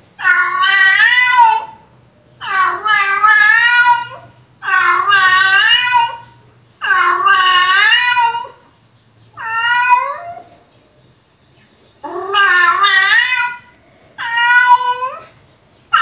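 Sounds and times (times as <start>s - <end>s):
cat meows through a speaker: 9.4s - 10.5s, 12.1s - 16.0s.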